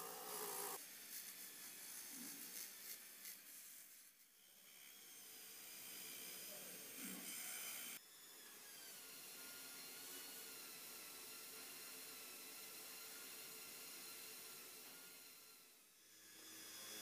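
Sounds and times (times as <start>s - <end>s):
faint hiss with thin whine: 0.0s - 4.6s
rotary tool sanding metal: 0.0s - 5.0s.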